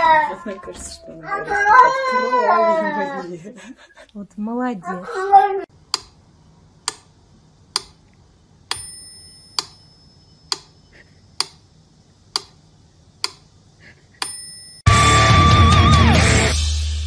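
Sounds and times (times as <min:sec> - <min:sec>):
sharp ticks: 0:05.9 - 0:06.2, 0:06.8 - 0:07.1, 0:07.7 - 0:08.1, 0:11.4 - 0:11.6, 0:12.3 - 0:12.6.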